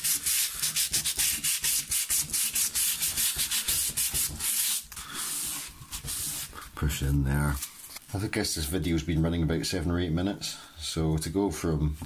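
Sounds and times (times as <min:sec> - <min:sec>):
sandpaper scratching rusty metal: 0:00.0 - 0:06.6.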